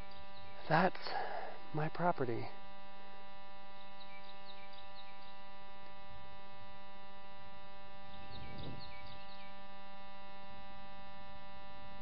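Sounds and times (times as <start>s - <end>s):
bird chirping: 0.0s - 0.7s, 3.7s - 5.5s, 8.0s - 9.7s
steady electrical buzz: 0.0s - 12.0s.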